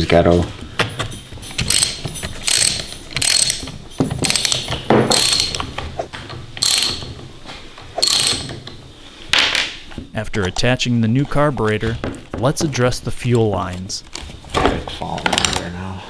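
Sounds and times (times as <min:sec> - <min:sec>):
ratchet wrench clicking: 0:01.6 - 0:05.6, 0:06.6 - 0:07.1, 0:08.0 - 0:08.5.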